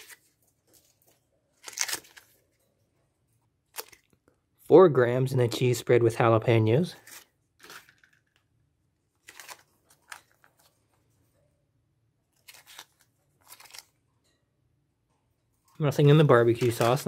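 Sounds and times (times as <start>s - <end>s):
plastic packets crinkling: 0.0s - 2.4s, 3.7s - 4.2s, 7.0s - 8.4s, 9.2s - 10.8s, 12.4s - 14.0s, 16.1s - 17.0s.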